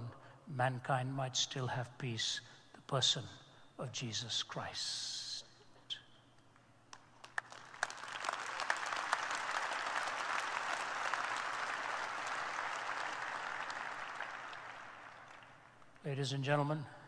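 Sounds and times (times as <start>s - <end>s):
audience applauding: 7.1s - 16.0s.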